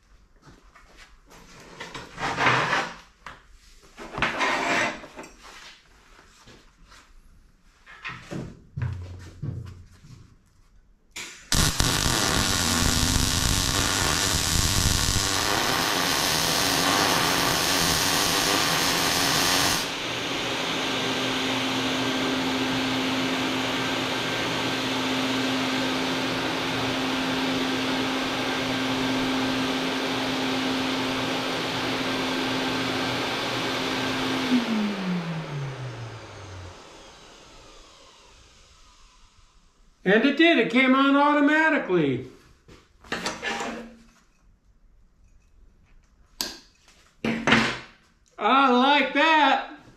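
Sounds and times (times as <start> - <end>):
welder arc crackling: 11.2 - 20.7
fume extractor whirring: 11.5 - 39.6.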